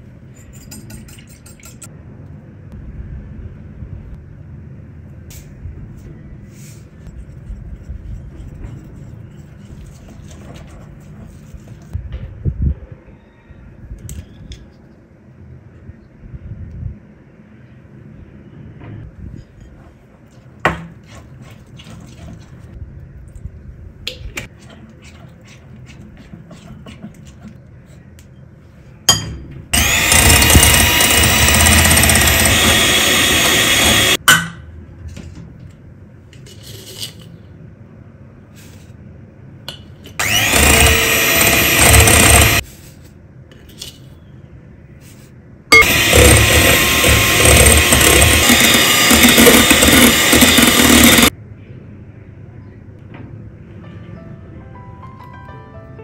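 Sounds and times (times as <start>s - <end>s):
electric hand mixer whining: 29.8s - 34.2s, 40.2s - 42.6s, 45.8s - 51.3s.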